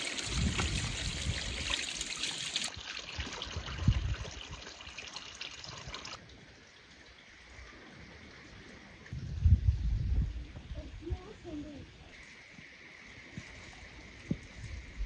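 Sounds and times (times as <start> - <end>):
water dripping: 0.0 - 9.2
water trickling and splashing: 0.0 - 15.0.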